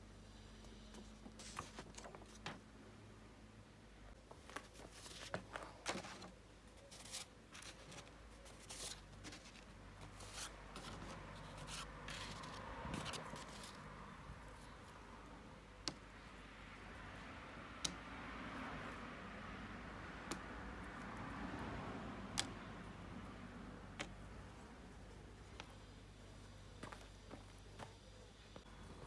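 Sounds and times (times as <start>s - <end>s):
card sheets rustling and sliding: 0.7s - 2.7s, 4.3s - 14.8s.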